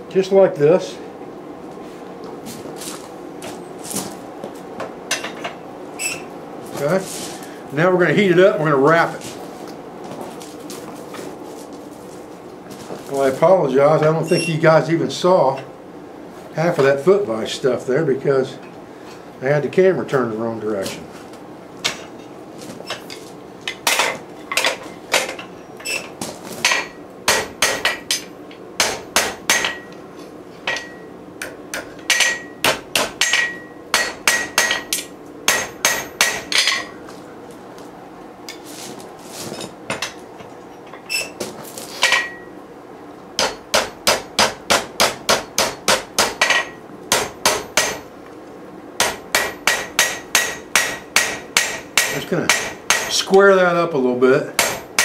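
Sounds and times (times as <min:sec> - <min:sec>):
hammer striking metal on anvil: 0:26.7 - 0:30.0, 0:30.7 - 0:36.9, 0:42.0 - 0:42.5, 0:43.4 - 0:48.0, 0:49.0 - 0:53.2, 0:54.6 - 0:55.0.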